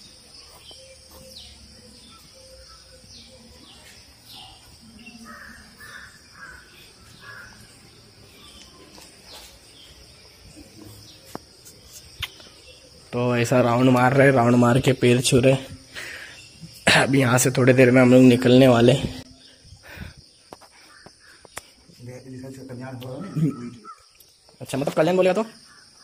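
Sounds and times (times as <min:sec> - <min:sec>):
small birds chirping: 0:00.0 - 0:26.0
crows cawing: 0:05.0 - 0:07.8, 0:20.6 - 0:21.6, 0:23.2 - 0:24.1.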